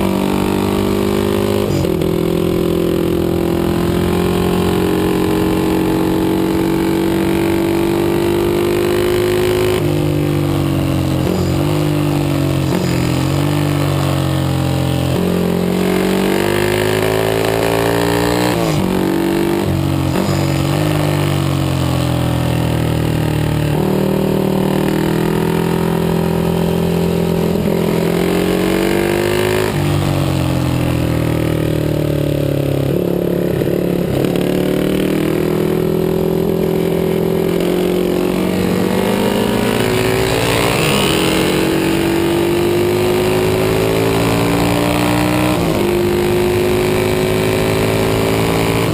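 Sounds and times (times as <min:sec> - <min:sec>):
motorcycle engine revving: 0:00.0 - 0:48.9.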